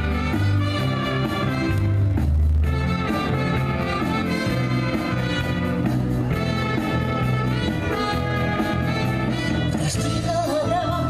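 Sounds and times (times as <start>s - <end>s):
brass band playing dance music: 0.0s - 11.0s.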